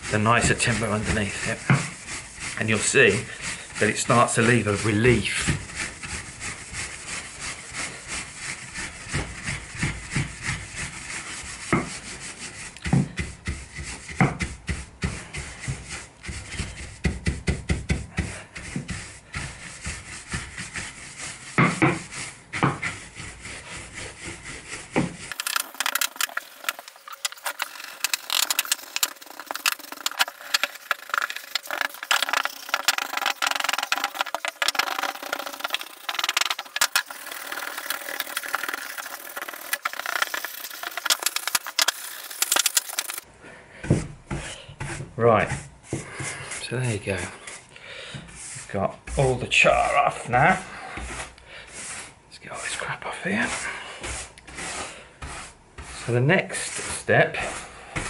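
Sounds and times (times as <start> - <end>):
brush scrubbing charred wood: 0.0 - 43.3, 44.3 - 58.0.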